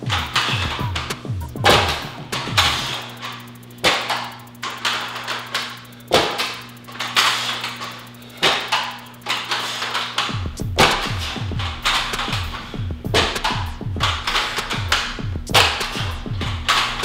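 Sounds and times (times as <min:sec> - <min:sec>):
background music with bass: 0:00.0 - 0:04.6, 0:10.3 - 0:17.0
dumbbells clanking on rubber floor: 0:08.4 - 0:17.0.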